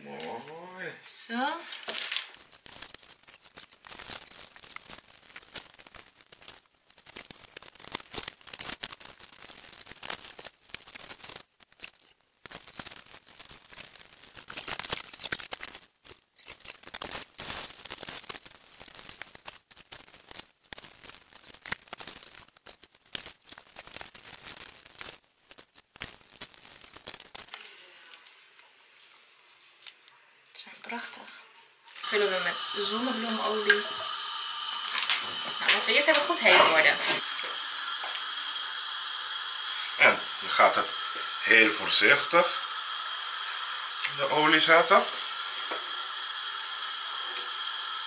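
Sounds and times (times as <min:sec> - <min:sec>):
plastic bag crinkling: 0:01.6 - 0:27.8.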